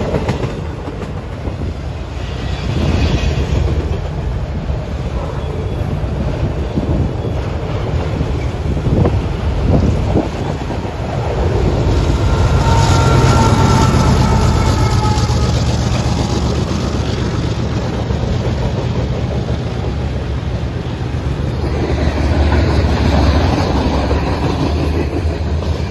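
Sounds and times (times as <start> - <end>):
diesel locomotive engine drone: 0.0 - 25.9
train wheels clattering on rails: 0.0 - 25.9
high wheel squeal: 11.2 - 17.4.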